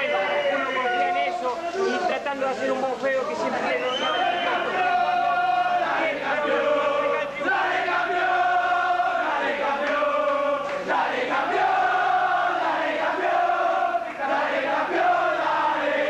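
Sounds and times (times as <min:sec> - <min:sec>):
crowd of men chanting in unison: 0:04.5 - 0:16.0.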